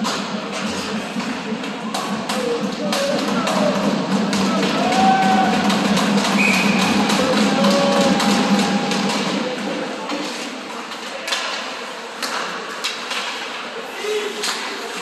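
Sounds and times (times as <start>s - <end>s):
pucks and sticks knocking: 0.0s - 11.6s
arena music: 2.0s - 10.0s.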